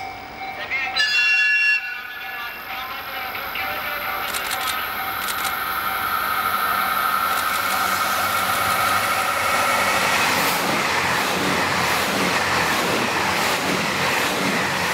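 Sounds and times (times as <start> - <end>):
diesel train engines running: 1.9 - 14.9
rush of wheels on rail: 4.1 - 14.9.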